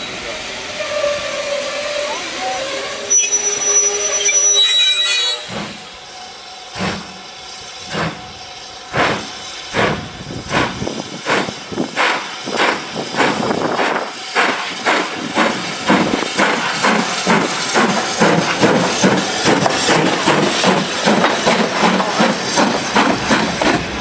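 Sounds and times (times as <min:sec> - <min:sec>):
steam hissing: 0:00.0 - 0:24.0
steam locomotive exhaust beats: 0:05.3 - 0:24.0.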